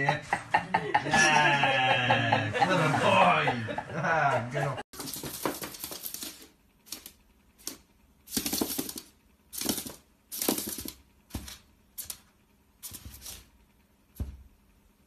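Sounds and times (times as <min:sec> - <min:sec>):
lizard claws scratching on floor: 0:04.9 - 0:13.6.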